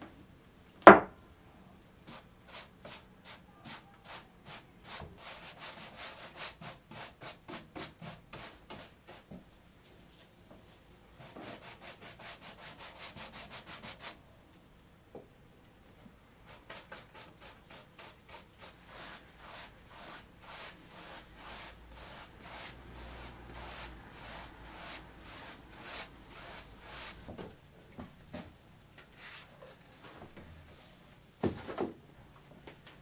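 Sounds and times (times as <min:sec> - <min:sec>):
handling knock: 0:00.9 - 0:01.1
brush swishing on painting: 0:16.5 - 0:27.3.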